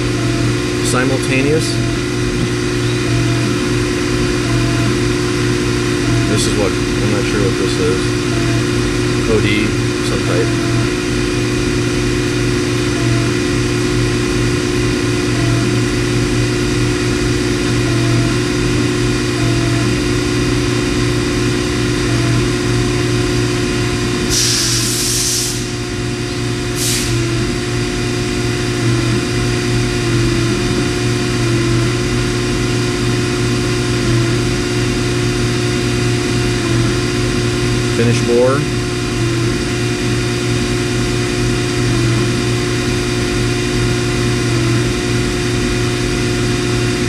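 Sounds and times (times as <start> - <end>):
lathe mechanical hum: 0.0 - 47.0
loud hiss: 24.3 - 25.8, 26.7 - 27.2.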